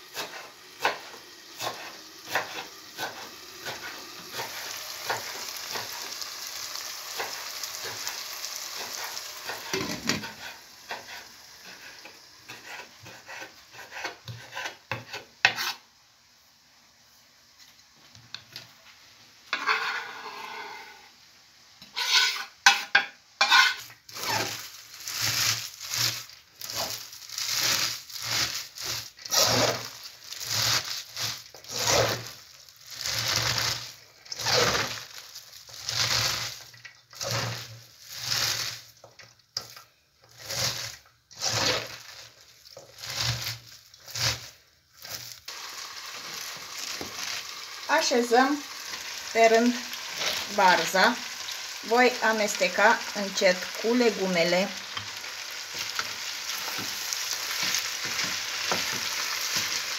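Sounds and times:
cabbage rustling and crunching by hand: 23.5s - 59.9s.

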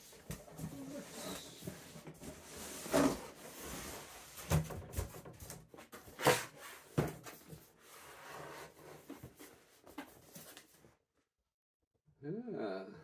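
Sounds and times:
cardboard scraping and knocking: 0.3s - 10.7s.

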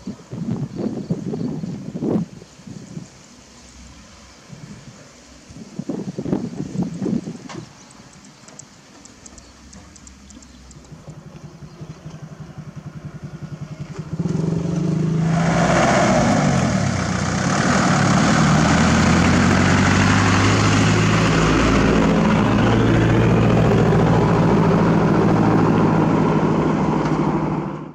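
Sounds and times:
diesel truck engine running: 8.0s - 27.9s.

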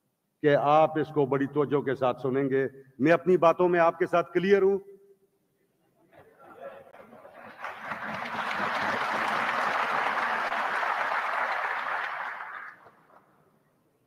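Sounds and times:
crowd applauding: 7.3s - 13.2s.

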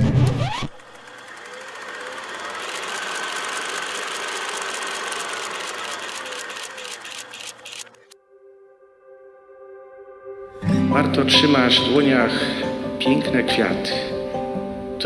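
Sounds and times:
film projector whirring and clicking: 0.2s - 8.2s.

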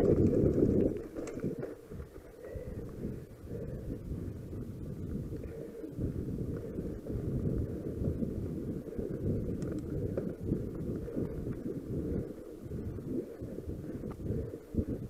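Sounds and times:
mountain bike rumbling over dirt: 0.0s - 2.2s
low thumps of bike on bumps: 0.0s - 15.0s
wind buffeting microphone: 0.0s - 15.0s.

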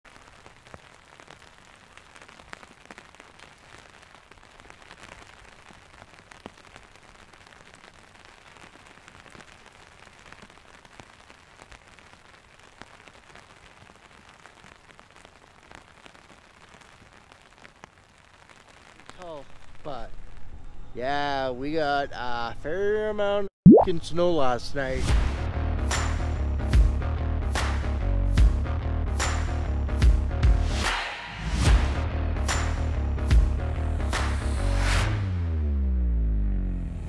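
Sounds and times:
ticks of flakes and drops landing: 0.1s - 19.8s
wet snow falling: 0.1s - 20.4s.

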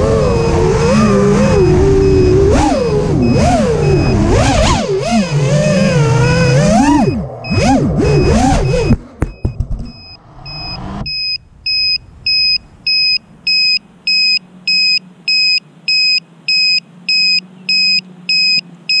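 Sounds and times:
drone motor whine: 0.0s - 14.9s
high piezo beep: 1.5s - 4.3s, 6.3s - 19.0s
drone knocking on pavement: 8.9s - 10.0s.

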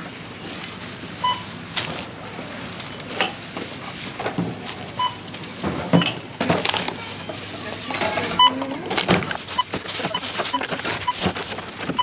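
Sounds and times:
groceries knocking and rustling: 1.7s - 12.0s
barcode scanner beeps: 8.3s - 8.7s, 9.5s - 11.2s.

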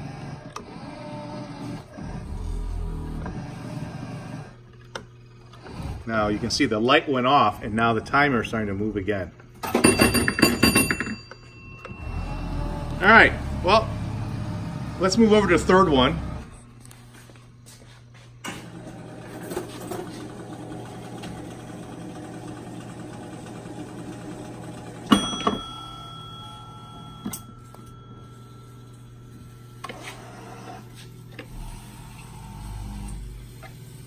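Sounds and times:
crane motor whirring: 0.0s - 9.6s, 11.8s - 17.8s, 18.4s - 34.0s
electrical hum: 0.0s - 34.0s.

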